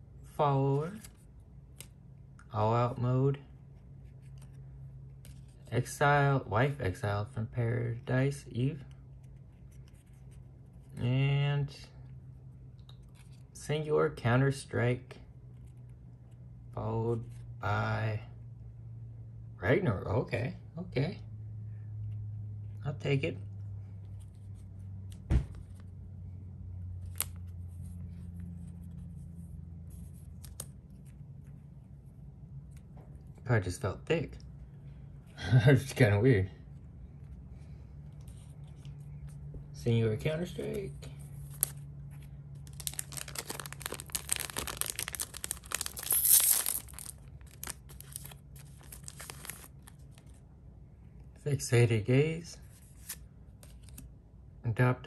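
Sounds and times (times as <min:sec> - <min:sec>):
low steady hum: 0:00.0 - 0:55.0
foil pack tearing and crinkling: 0:42.6 - 0:50.3.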